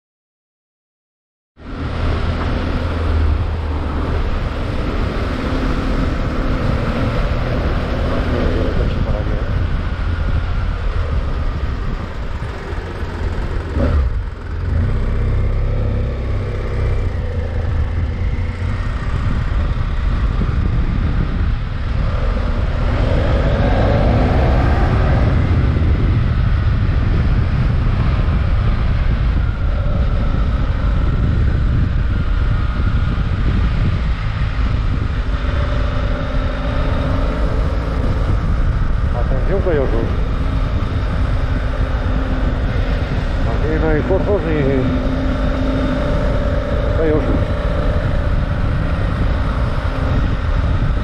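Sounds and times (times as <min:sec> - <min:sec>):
motorcycle engine running: 0:01.6 - 0:51.0.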